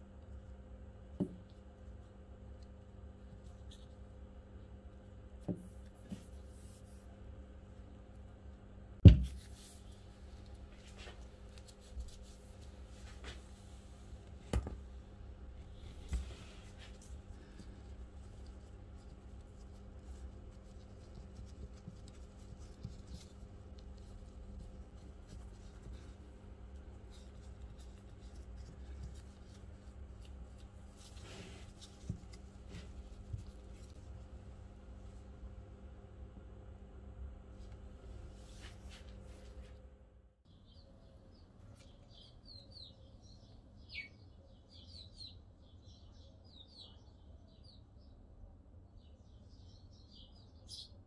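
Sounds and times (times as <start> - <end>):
plastic gloves rustling: 9.4 - 35.3.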